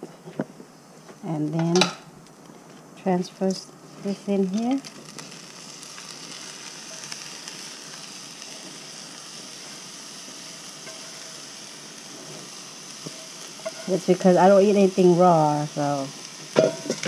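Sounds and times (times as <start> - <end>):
fish sizzling in a pan: 4.0 - 17.0.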